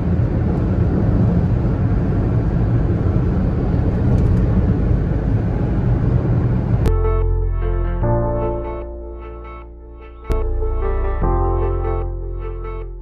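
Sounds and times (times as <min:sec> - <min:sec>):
road and engine noise in car: 0:00.0 - 0:08.9
ambient music with held notes: 0:06.9 - 0:13.0.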